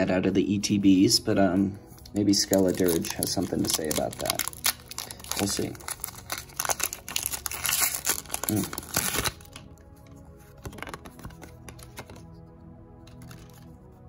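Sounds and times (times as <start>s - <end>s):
soft background music: 0.0s - 14.0s
handling of cards: 1.9s - 12.4s, 13.0s - 13.9s
foil wrapper crinkling and tearing: 2.3s - 9.7s.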